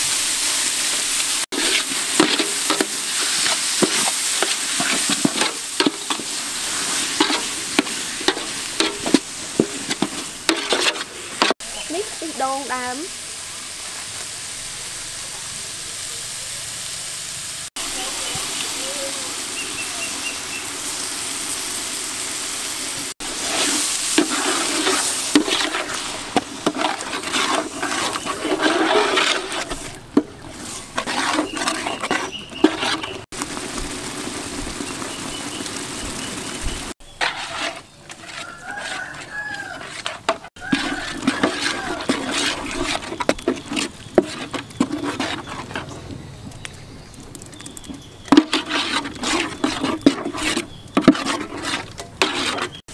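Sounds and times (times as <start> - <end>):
cooking hiss: 0.0 - 52.9
metal ladle scraping pot: 1.5 - 11.6, 23.2 - 33.3, 37.0 - 46.3, 47.4 - 52.9
short whistling calls: 19.4 - 20.7, 31.4 - 33.2.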